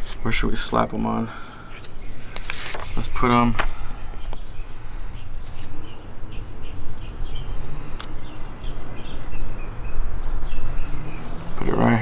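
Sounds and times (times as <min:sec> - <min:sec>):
small bird chirping: 0:04.2 - 0:11.9.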